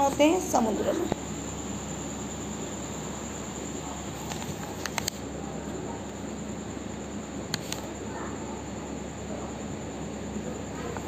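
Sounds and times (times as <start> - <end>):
high-pitched background whine: 0.0 - 11.0
faint clicks: 4.2 - 5.2.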